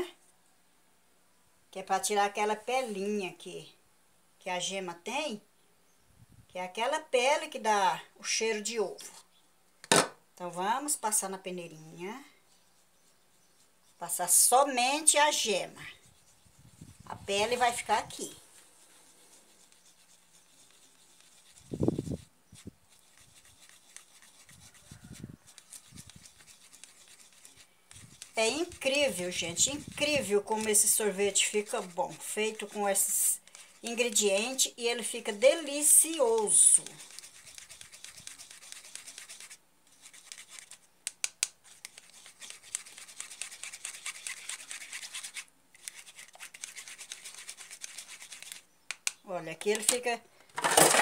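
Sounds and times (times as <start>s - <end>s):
spatula scraping through sieve: 12.5s - 40.7s
sharp clicks: 48.9s - 49.2s.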